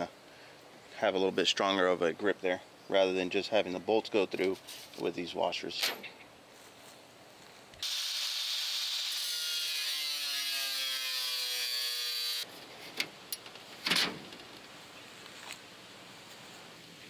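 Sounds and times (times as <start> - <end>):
angle grinder cutting metal: 7.8 - 12.5.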